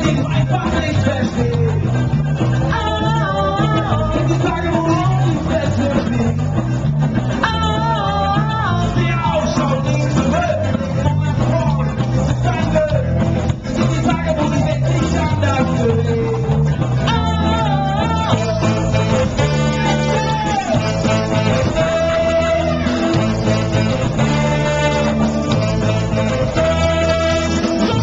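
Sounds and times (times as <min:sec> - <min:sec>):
electric guitar: 0:00.0 - 0:28.0
lead singer: 0:00.0 - 0:28.0
live band playing: 0:00.0 - 0:28.0
saxophone section: 0:17.1 - 0:28.0.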